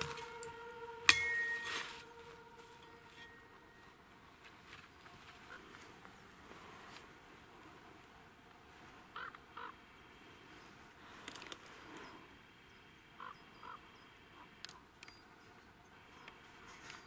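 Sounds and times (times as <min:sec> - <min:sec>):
low outdoor hiss: 0:00.0 - 0:17.0
crow cawing: 0:09.1 - 0:09.8.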